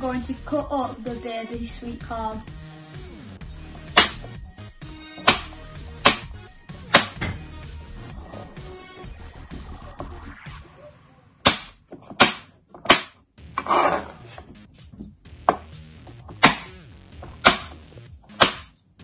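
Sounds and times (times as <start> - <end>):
knife chopping on plastic board: 3.7 - 4.4, 5.1 - 7.4, 11.4 - 14.0, 15.5 - 18.7.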